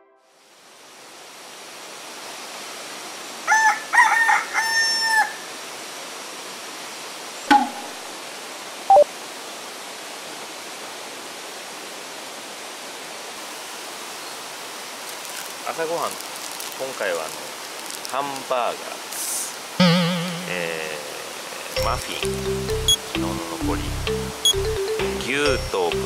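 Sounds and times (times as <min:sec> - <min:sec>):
rooster crowing: 0:03.5 - 0:05.5.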